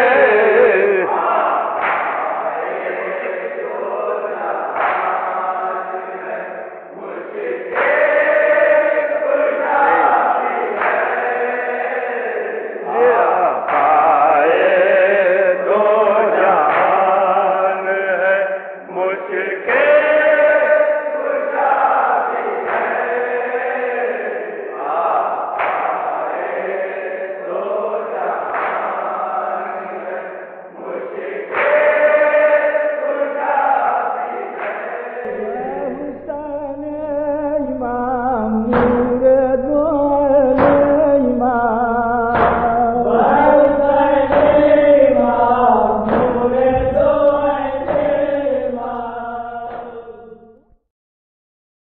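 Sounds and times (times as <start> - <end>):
voices chanting a lament: 0.0 - 50.8
steady low hum: 35.3 - 50.2.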